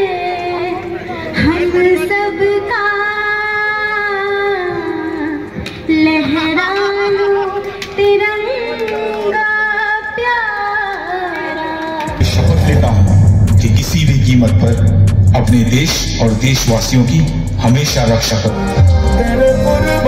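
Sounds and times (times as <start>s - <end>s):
woman singing through loudspeakers: 0.0s - 12.2s.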